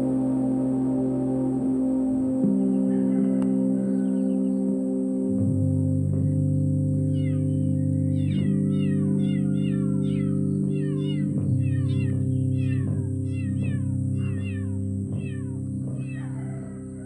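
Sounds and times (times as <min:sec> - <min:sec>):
music of low sustained notes: 0:00.0 - 0:17.0
kittens mewing: 0:07.1 - 0:17.0.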